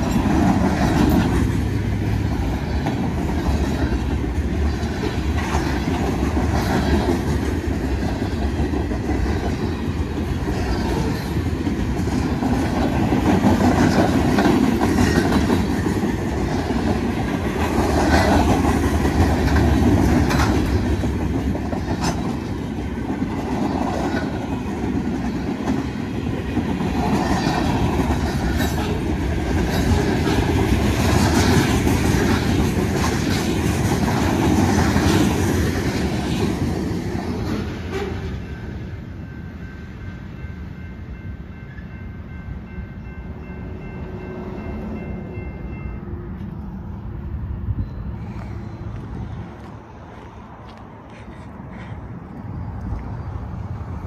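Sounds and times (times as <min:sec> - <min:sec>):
wheels clicking over rail joints: 0:00.0 - 0:38.4
steel wheels rumbling on rail: 0:00.0 - 0:54.0.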